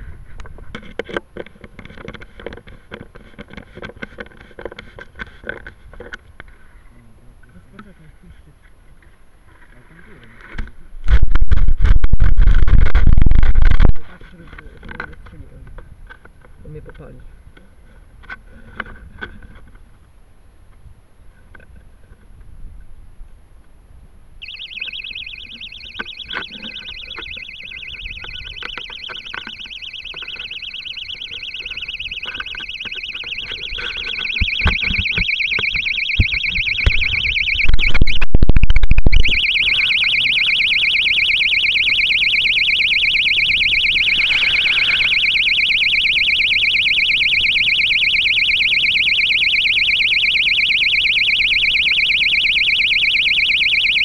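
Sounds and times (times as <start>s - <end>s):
knocks and rubbing on microphone: 11.0s - 14.0s, 33.6s - 39.3s
shrill pulsing electronic buzzer: 24.4s - 54.0s.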